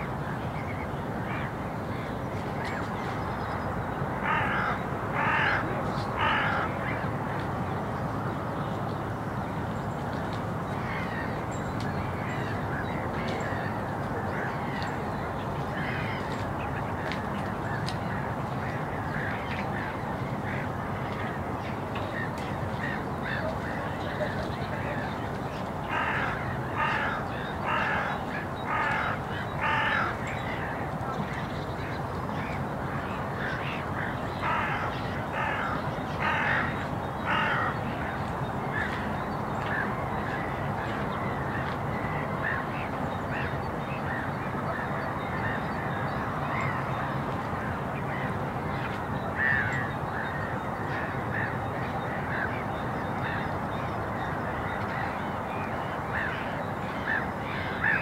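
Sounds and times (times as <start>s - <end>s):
crow cawing: 4.2s - 6.7s, 25.9s - 30.2s, 34.4s - 36.7s, 37.3s - 37.8s.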